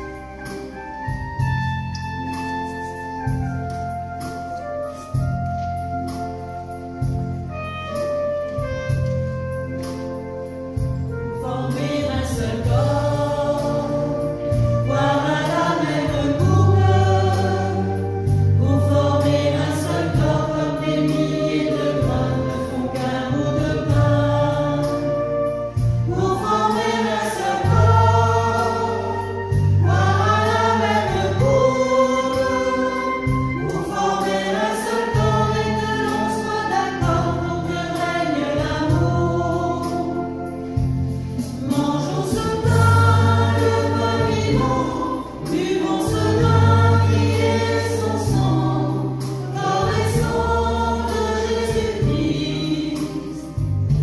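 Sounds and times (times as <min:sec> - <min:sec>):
choir singing a hymn: 0:00.0 - 0:54.0
electronic keyboard: 0:00.0 - 0:54.0.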